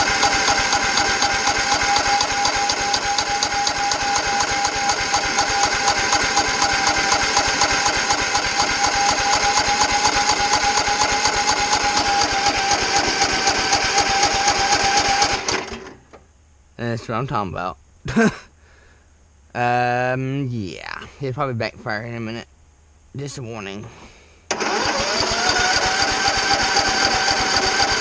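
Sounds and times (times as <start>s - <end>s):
riding lawn mower engine running: 0.0s - 16.2s, 24.5s - 28.0s.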